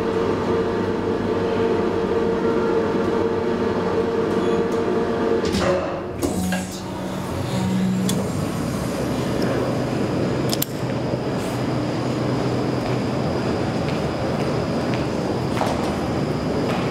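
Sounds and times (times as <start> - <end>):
metro station background noise: 0.0 - 16.9
short low buzzing tones: 6.2 - 10.2.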